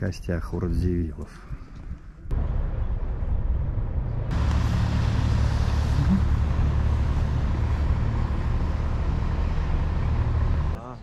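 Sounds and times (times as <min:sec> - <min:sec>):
low rumble: 0:02.2 - 0:10.8.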